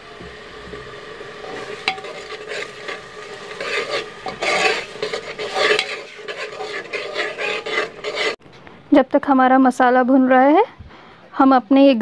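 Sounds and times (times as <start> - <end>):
spoon scraping a metal pot: 1.4 - 8.4.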